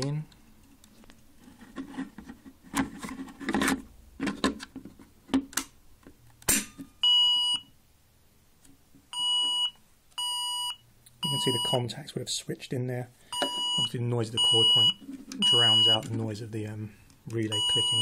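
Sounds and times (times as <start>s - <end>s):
fire alarm sounder tone: 9.2s - 11.8s, 13.3s - 16.0s, 17.5s - 18.0s.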